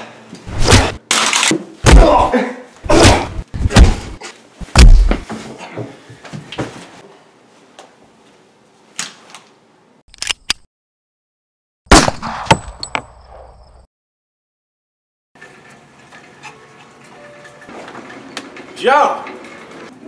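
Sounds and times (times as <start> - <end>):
heavy thud: 2.9 - 5.2.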